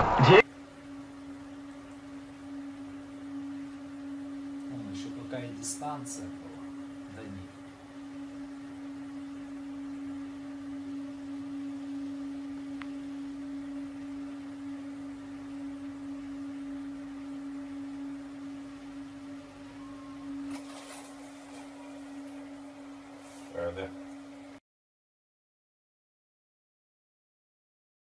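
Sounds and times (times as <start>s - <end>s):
steady electronic hum: 0.0s - 24.6s
faint click: 12.8s - 13.0s
faint scratchy rustle: 20.5s - 22.4s, 23.1s - 23.8s.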